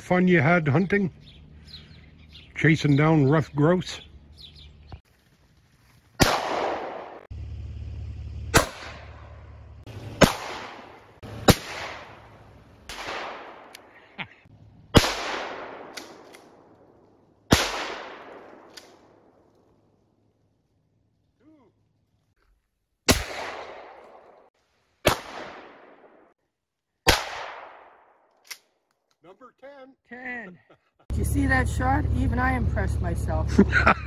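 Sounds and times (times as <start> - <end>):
gunshots echoing: 6.2 - 7.3, 8.5 - 9.3, 10.1 - 14.1, 14.9 - 19.4, 23.1 - 26.3, 27.0 - 28.2.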